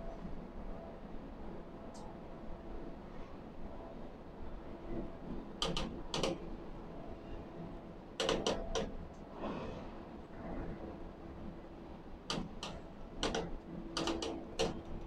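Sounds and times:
sharp clicks or knocks: 12.3 - 14.9.

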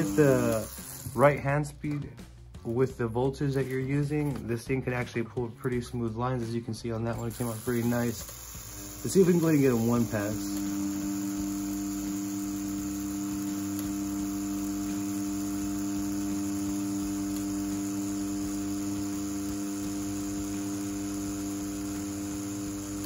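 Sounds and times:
tattoo pen motor humming: 0.0 - 1.4, 7.1 - 23.0.

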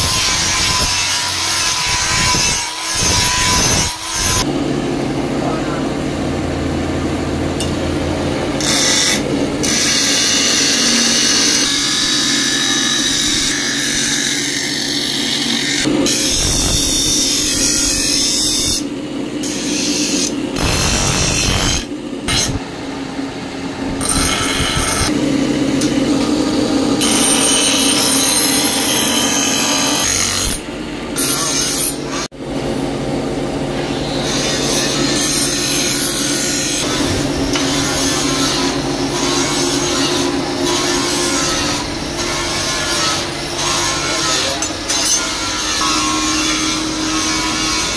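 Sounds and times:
machine humming: 3.6 - 47.9
blade grinding on wheel: 23.9 - 25.2, 34.3 - 47.9.

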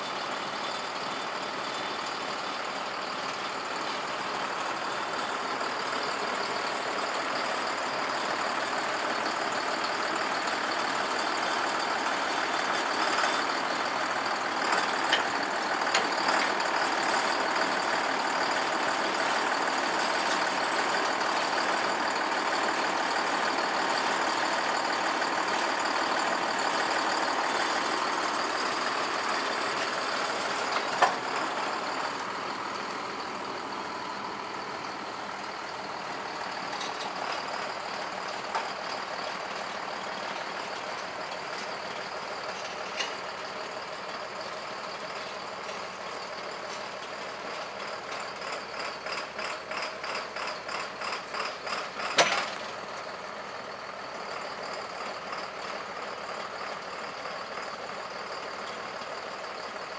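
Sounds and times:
tractor engine under load: 0.0 - 59.9
metal clunks from implement: 52.0 - 52.7.

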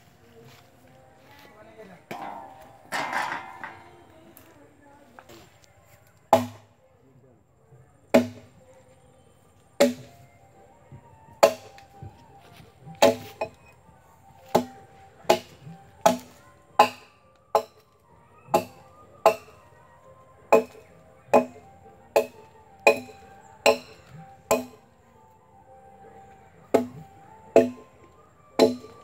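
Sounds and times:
axe chopping wood: 6.3 - 6.6, 8.1 - 8.5, 9.8 - 10.1, 11.4 - 11.8, 13.0 - 13.5, 14.5 - 14.7, 15.3 - 17.8, 20.5 - 21.6, 26.8 - 27.0, 27.6 - 27.8, 28.6 - 29.0.

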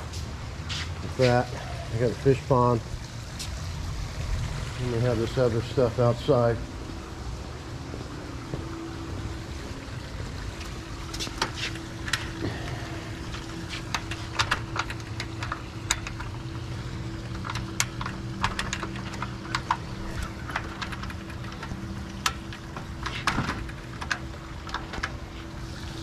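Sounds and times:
steady low hum: 0.0 - 26.0
door latch clicking and rattling: 13.9 - 16.5, 17.1 - 25.2.

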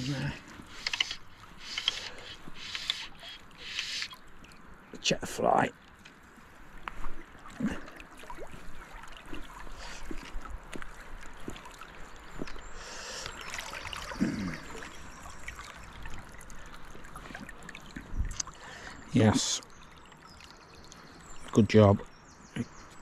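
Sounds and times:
river water trickling and lapping: 0.0 - 23.0
small splashes: 5.8 - 21.6.

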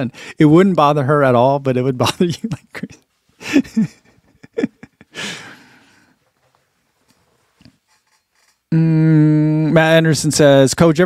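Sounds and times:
man sighing laugh: 3.4 - 6.1.

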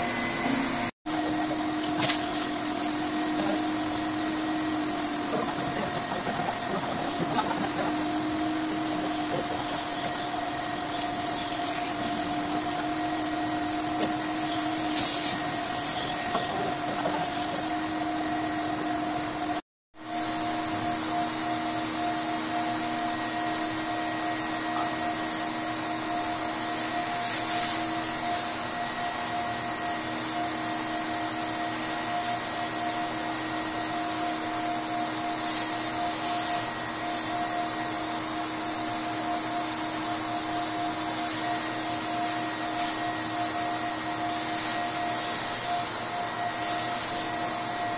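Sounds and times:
pressure washer motor hum: 0.0 - 47.9
water spray hissing: 1.4 - 17.8, 26.6 - 28.0, 35.3 - 37.5.

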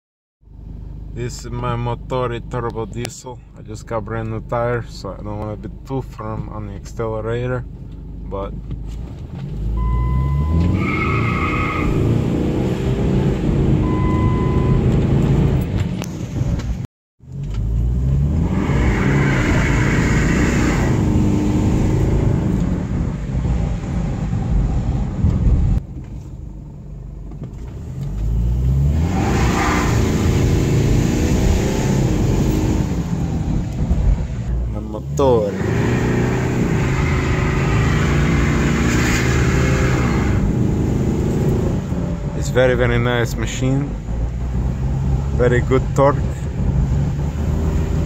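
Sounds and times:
diesel engine accelerating hard: 9.6 - 16.7, 27.7 - 48.0.

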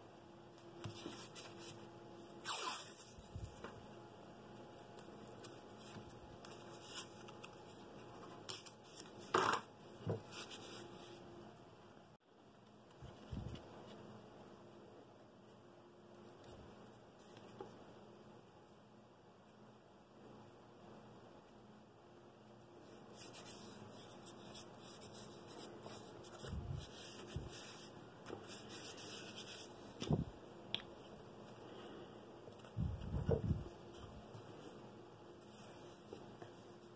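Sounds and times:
paper rustling and rubbing: 0.8 - 1.9, 4.9 - 11.2, 22.8 - 30.3.

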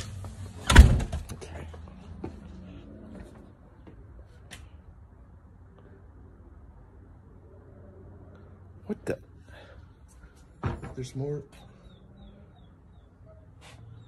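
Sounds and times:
door shutting with thud: 0.6 - 1.3, 10.6 - 11.0.

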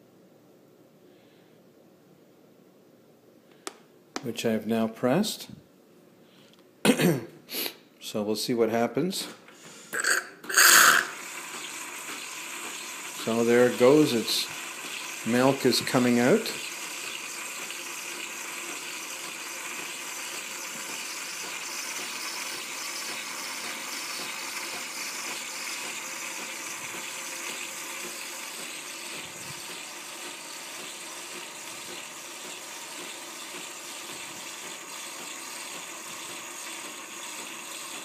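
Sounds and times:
milk frother hissing: 10.0 - 38.0.

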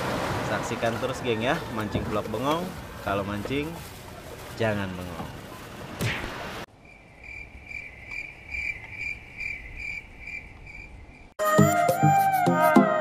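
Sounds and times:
cricket chirping: 6.7 - 11.4.

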